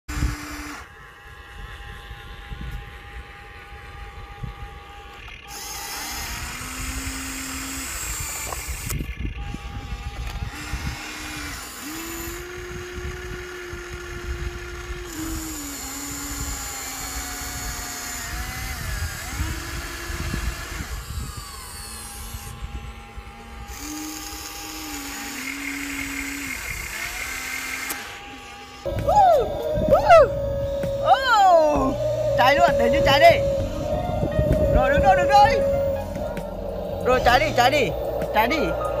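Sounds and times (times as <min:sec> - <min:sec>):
toy excavator motors whining: 0:00.1 - 0:39.0.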